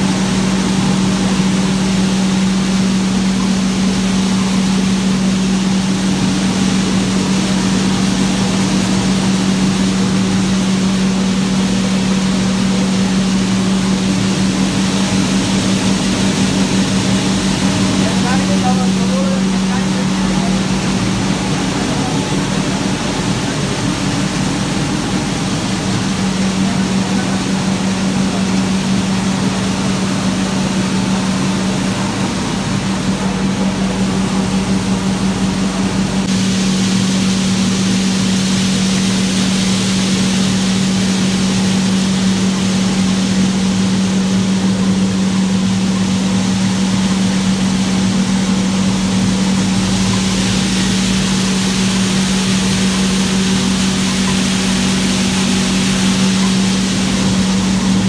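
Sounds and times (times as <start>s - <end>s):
roasting drum machine hum: 0.0s - 58.0s
rushing hiss: 36.3s - 44.1s, 46.6s - 58.0s.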